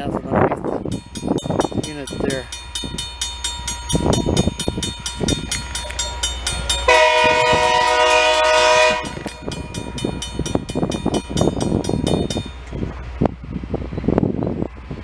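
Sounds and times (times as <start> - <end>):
rail grinder grinding: 0.7 - 15.0
horn chord: 6.9 - 9.3.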